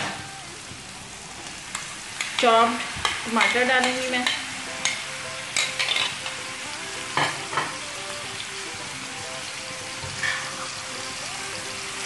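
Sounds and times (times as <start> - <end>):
food sizzling in oil: 0.0 - 12.0
utensils scraping and tapping: 5.6 - 6.2.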